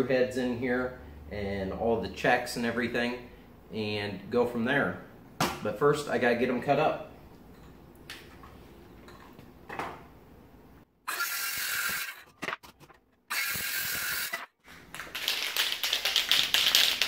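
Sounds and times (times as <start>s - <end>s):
circular saw cutting wood: 11.1s - 12.7s, 13.3s - 14.5s.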